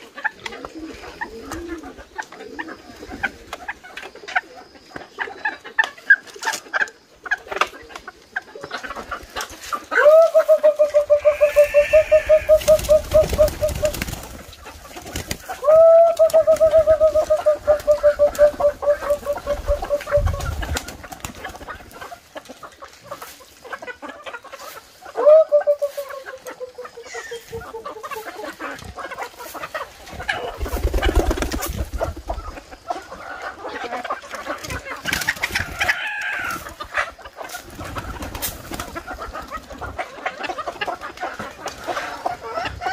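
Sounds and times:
chickens clucking: 0.0s - 42.9s
long drawn-out calls: 9.9s - 14.1s, 15.5s - 20.4s.

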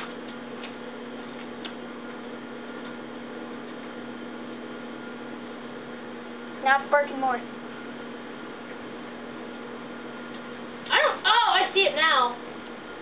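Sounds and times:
microwave oven humming: 0.0s - 13.0s.

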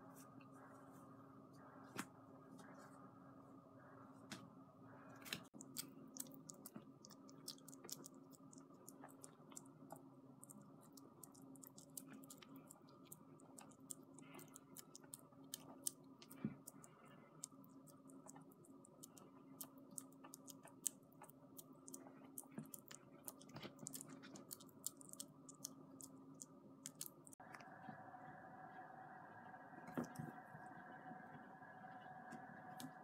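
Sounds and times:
low steady hum: 0.0s - 33.0s
kitten lapping and chewing: 5.5s - 27.7s.

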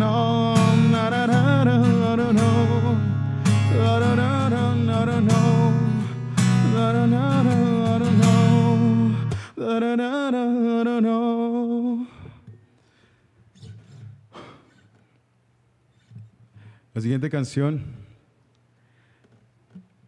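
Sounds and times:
strummed acoustic guitar: 0.0s - 9.9s, 13.5s - 15.0s
man singing: 0.0s - 12.3s.

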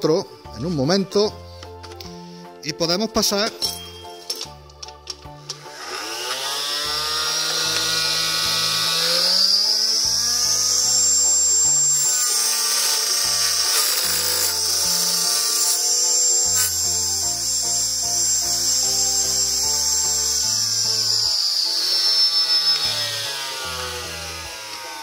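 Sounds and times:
background music: 0.0s - 25.0s
table saw whining cutting wood: 5.4s - 25.0s.

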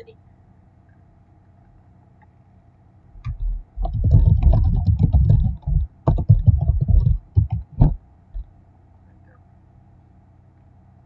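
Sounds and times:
rapid dull clicks and knocks: 3.2s - 8.6s.

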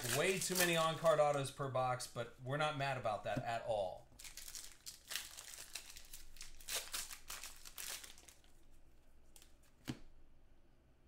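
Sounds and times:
card pack wrappers crinkling: 0.0s - 1.5s, 4.2s - 9.9s.

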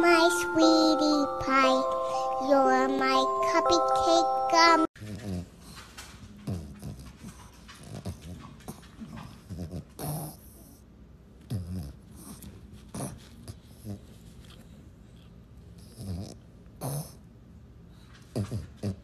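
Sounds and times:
dog snorting: 15.8s - 17.2s.

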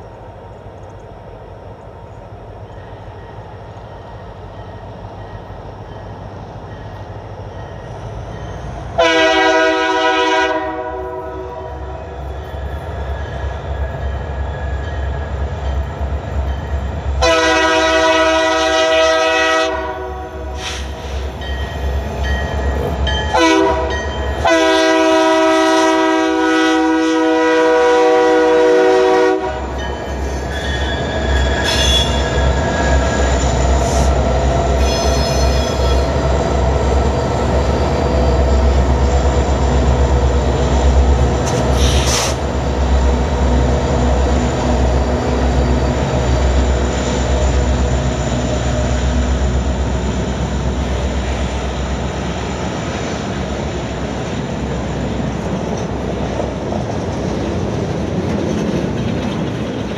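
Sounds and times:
locomotive rumble passing: 0.0s - 59.9s
locomotive air horn: 9.0s - 12.2s, 17.2s - 21.2s, 23.3s - 29.8s, 31.6s - 32.4s, 34.8s - 36.1s, 41.5s - 42.4s
freight cars rolling past: 29.6s - 59.9s
high wheel squeals: 29.8s - 36.2s.

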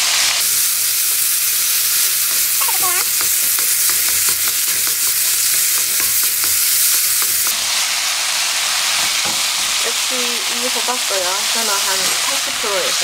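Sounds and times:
vegetables sizzling in a wok: 0.0s - 13.0s
utensils clicking against pan: 2.0s - 7.6s.

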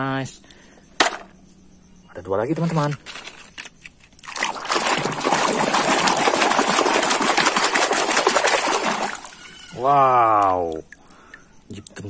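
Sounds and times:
water splashing and sloshing: 4.2s - 11.6s.

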